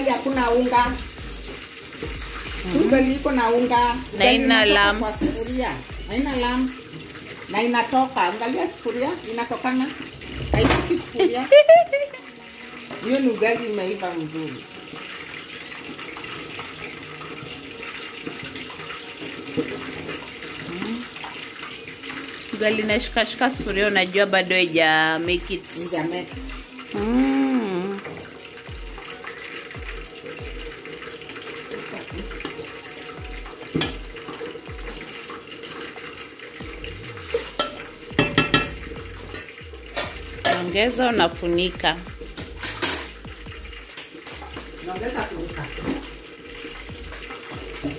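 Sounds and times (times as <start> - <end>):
stick knocking on a pot: 37.3 - 39.2.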